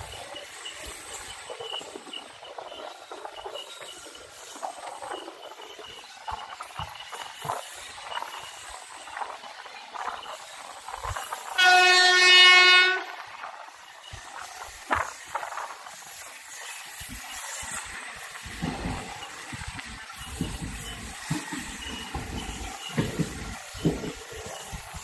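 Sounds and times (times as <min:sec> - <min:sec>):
train coaches knocking: 0:00.0 - 0:25.0
train rattling over track: 0:00.0 - 0:25.0
locomotive horn blast: 0:11.6 - 0:13.2.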